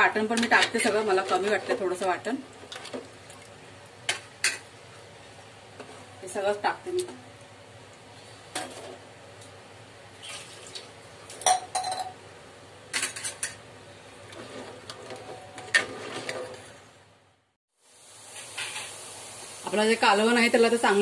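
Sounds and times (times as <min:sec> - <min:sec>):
utensils scraping a pot: 0:14.3 - 0:16.7.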